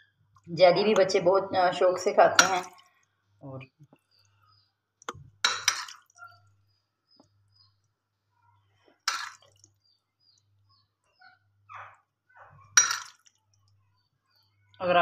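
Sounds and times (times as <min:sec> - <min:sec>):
metal spoon clinking on glass: 0:05.4 - 0:06.1, 0:12.8 - 0:13.2.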